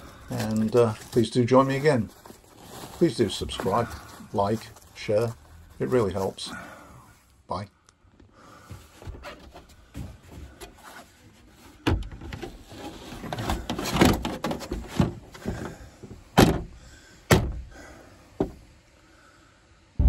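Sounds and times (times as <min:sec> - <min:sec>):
knocks and clunks of handling: 0:08.7 - 0:17.7, 0:18.4 - 0:18.7.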